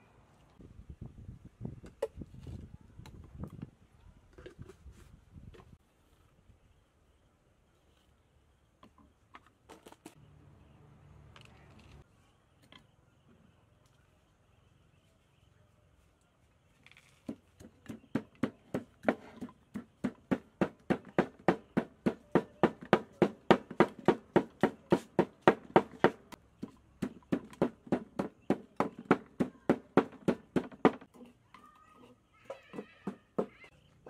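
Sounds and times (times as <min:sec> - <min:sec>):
wooden pestle pounding in mortar: 0:17.6 - 0:26.2, 0:27.0 - 0:31.1.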